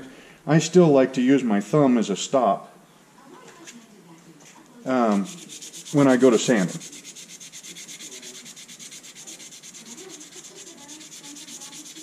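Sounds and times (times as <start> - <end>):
sandpaper rubbing on steel: 5.0 - 12.0.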